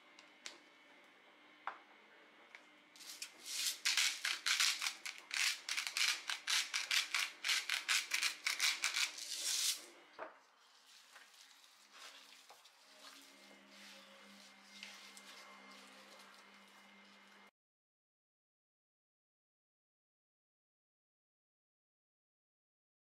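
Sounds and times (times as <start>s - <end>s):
spice shaker rattling: 3.5s - 9.8s.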